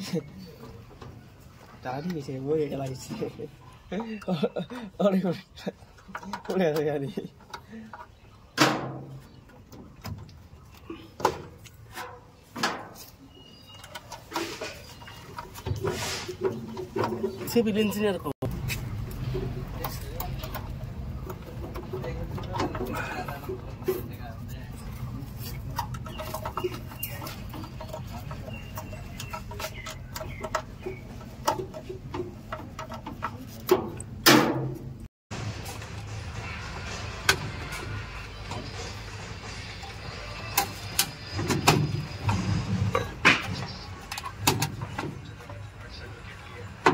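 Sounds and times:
cables knocking and rustling: 5.9 - 35.1
scraping rustle: 11.8 - 17.7.

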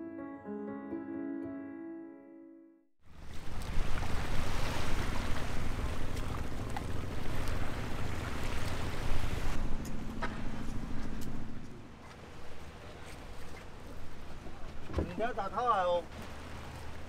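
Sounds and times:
waves washing onto shore: 3.1 - 9.6, 12.0 - 17.0.

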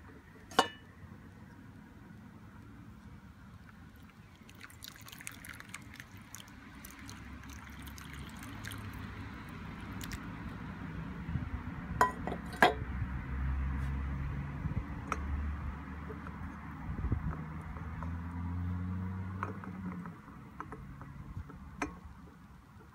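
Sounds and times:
water pouring into bowl: 3.9 - 10.3.

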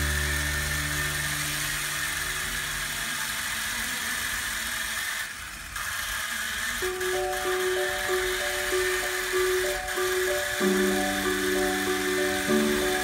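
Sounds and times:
background music: 0.0 - 2.0, 6.8 - 13.0
toy helicopter motor whirring: 0.0 - 13.0.

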